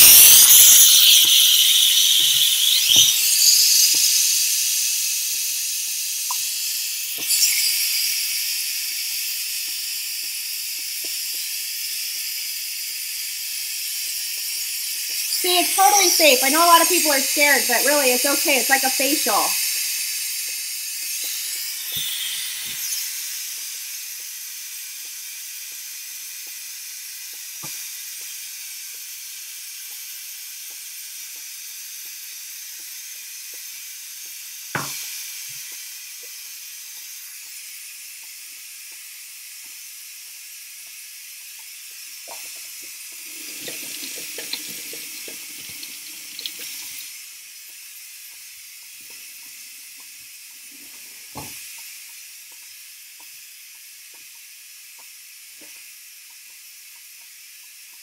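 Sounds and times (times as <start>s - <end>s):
steam hissing from valve: 0.0s - 58.0s
sharp knock: 34.8s - 35.0s.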